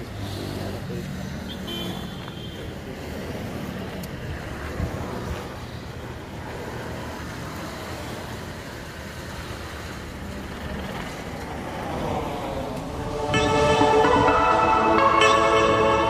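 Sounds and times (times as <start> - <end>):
vehicle engine rumble: 2.4 - 14.3
loud held multi-pitch tone: 13.0 - 16.0.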